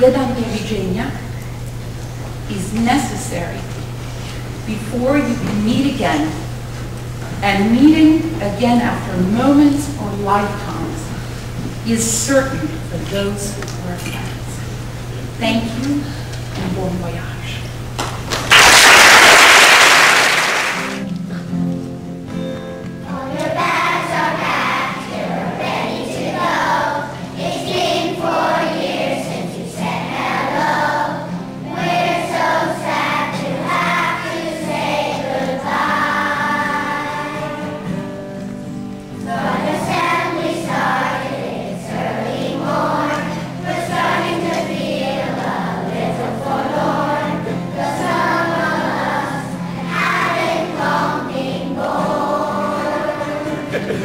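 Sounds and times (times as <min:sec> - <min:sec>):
children's choir singing: 0:23.0 - 0:38.5, 0:39.1 - 0:54.0.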